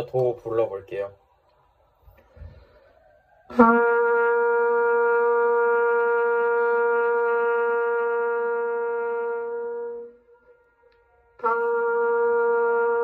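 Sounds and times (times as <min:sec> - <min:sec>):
trumpets playing long note: 0:03.5 - 0:13.0.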